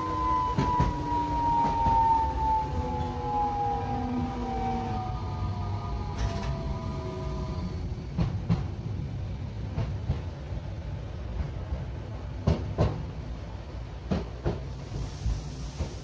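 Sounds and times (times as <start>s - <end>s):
tram motor whine: 0.0s - 9.6s
tram running rumble: 0.0s - 16.0s.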